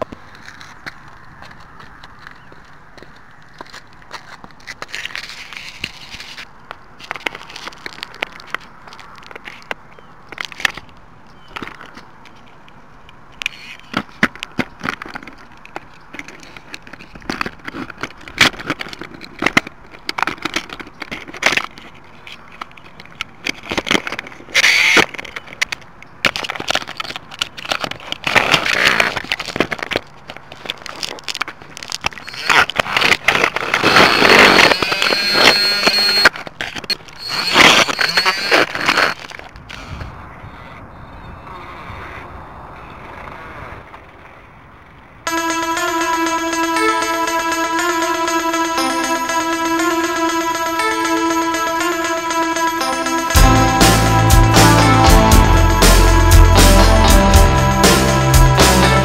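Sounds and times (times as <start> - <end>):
rough noise with high whine: 32.0 - 39.8.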